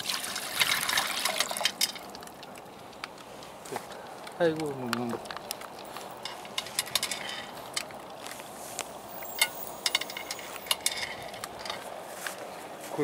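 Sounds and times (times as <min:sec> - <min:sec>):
dog crunching dry kibble: 0:01.1 - 0:09.4.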